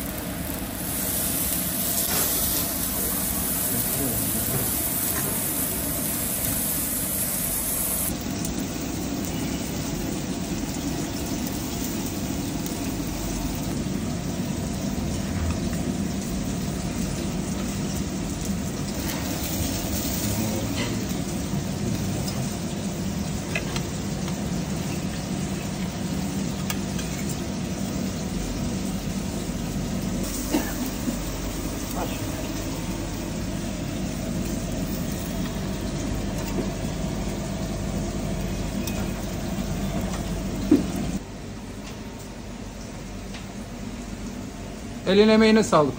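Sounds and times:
fish sizzling on a grill: 0.0s - 41.2s
low kitchen noise: 0.0s - 45.9s.

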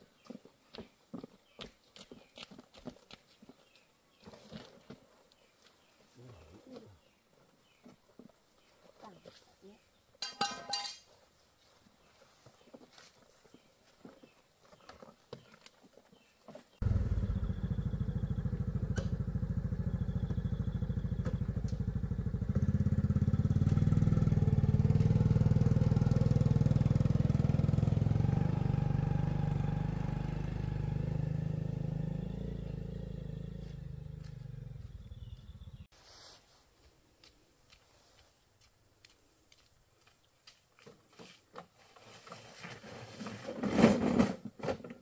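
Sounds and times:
motorcycle engine puttering: 16.8s - 35.9s.

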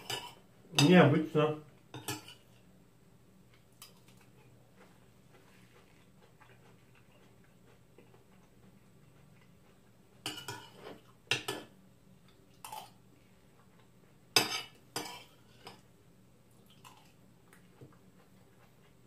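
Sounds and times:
cutlery clinking on ceramic plate: 0.0s - 0.9s, 1.9s - 2.5s, 10.3s - 11.7s, 14.4s - 15.8s.

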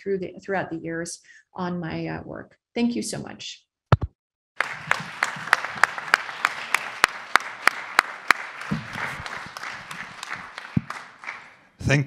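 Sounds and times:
sharp individual claps: 3.9s - 11.6s
audience applauding: 4.6s - 12.0s.

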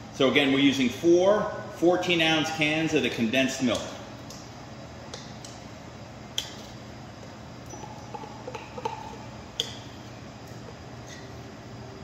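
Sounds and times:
low background hum: 0.0s - 12.0s
faint pings: 7.6s - 9.8s.

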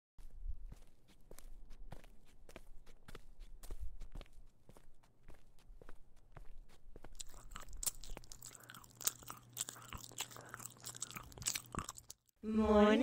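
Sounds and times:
wet crunching and chewing: 7.0s - 12.3s.

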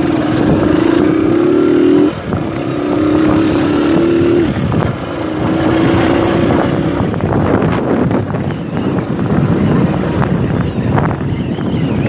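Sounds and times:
small motorcycle engine running: 0.0s - 12.0s.

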